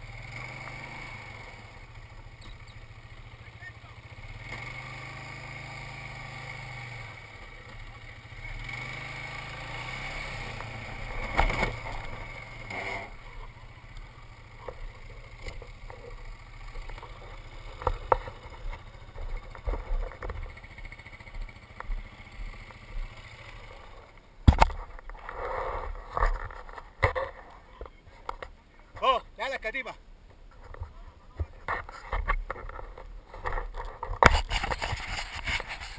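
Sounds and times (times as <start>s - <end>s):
quad bike engine revving: 0.0s - 27.4s.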